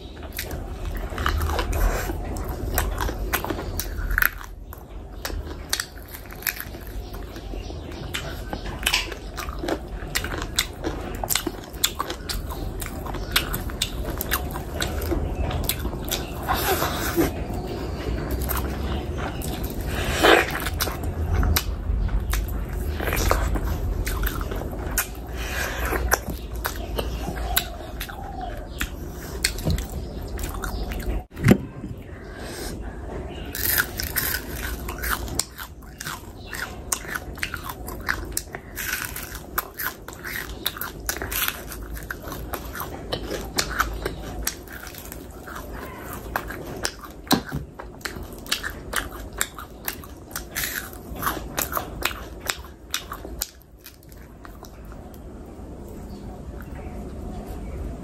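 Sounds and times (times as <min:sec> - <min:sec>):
chewing and crunching: 0:00.0 - 0:31.4, 0:32.0 - 0:58.0.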